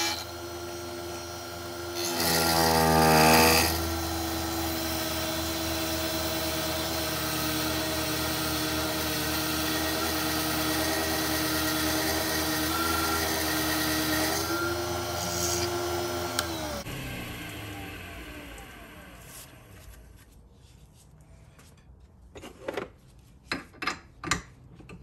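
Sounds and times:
cutter shaving wood hiss: 0.0s - 19.8s
lathe motor whine: 0.0s - 19.8s.

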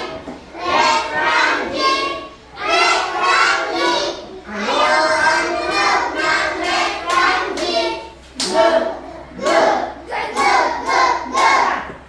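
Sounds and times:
children singing together: 0.0s - 12.0s.

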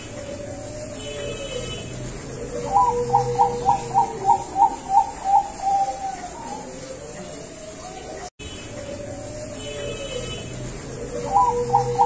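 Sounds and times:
dove cooing: 0.0s - 12.0s.

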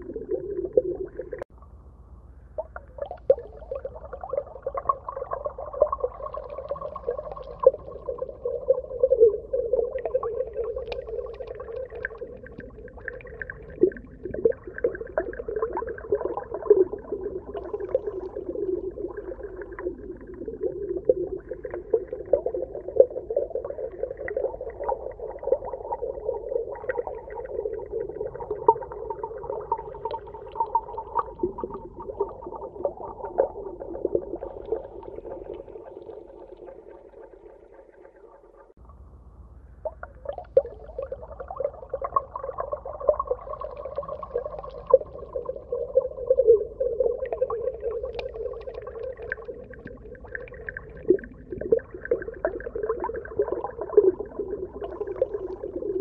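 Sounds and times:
low underwater hum: 0.0s - 56.0s
small crackles and pops: 9.8s - 26.1s, 39.8s - 46.6s, 47.2s - 56.0s.

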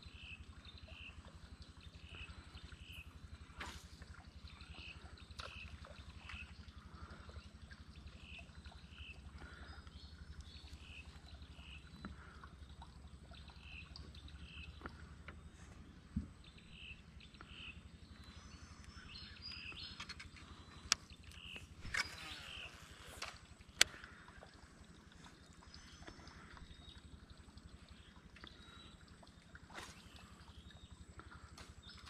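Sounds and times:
low pulsing hum: 0.0s - 32.0s
sharp clicks: 19.8s - 24.1s.

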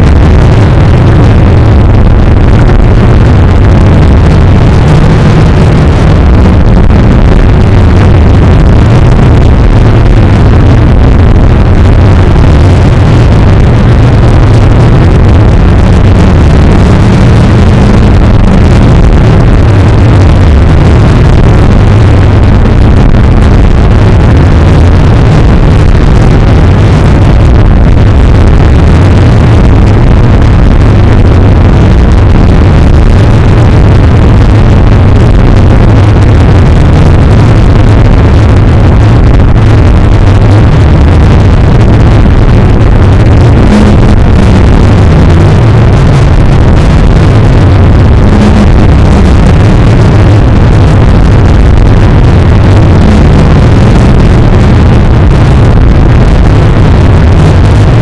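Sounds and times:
distorted noise with low rumble: 0.0s - 58.0s.

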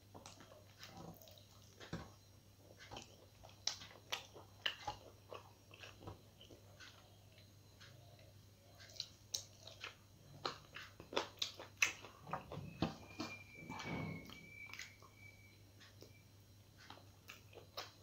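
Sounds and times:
wet chewing and lip-smacking: 2.8s - 13.5s, 16.8s - 18.0s.

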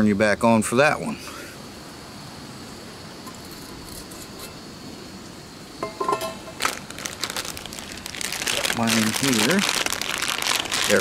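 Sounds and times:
high insect drone: 0.0s - 11.0s
gas camp stove hissing: 1.0s - 9.6s
metal pot clink: 5.8s - 6.6s
plastic food packet crackling: 6.6s - 11.0s.

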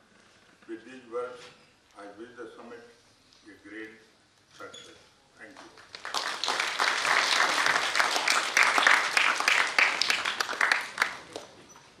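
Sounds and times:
audience applauding: 5.7s - 11.6s.

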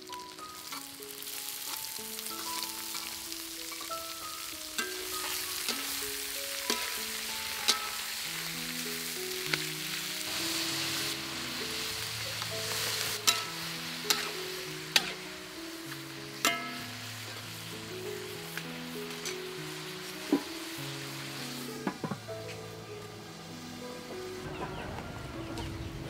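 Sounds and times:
food sizzling in a wok: 0.0s - 26.0s
soft background music: 0.0s - 26.0s
metal spatula scraping wok: 0.6s - 8.2s, 10.2s - 17.6s.

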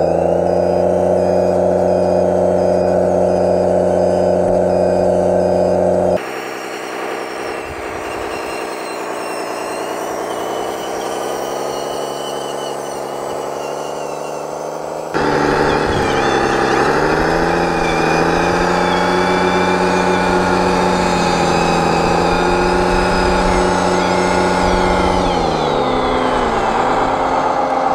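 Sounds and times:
toy bulldozer mechanical drone: 0.0s - 27.9s.

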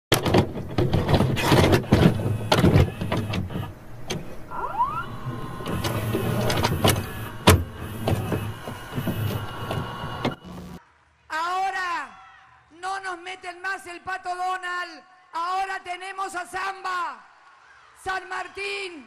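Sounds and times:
low hum: 2.0s - 10.8s
rising whine: 2.2s - 10.8s
crackling static: 4.9s - 10.8s.

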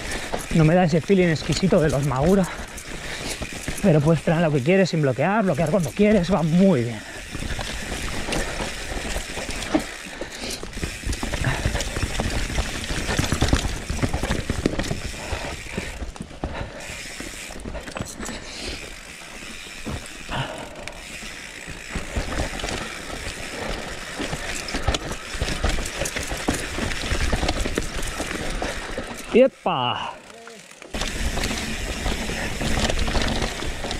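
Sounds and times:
bike chain and frame clattering: 0.0s - 33.9s
tyres rumbling: 0.0s - 33.9s
wind: 0.0s - 33.9s
freehub ratchet buzzing: 18.3s - 29.3s, 30.5s - 33.9s.

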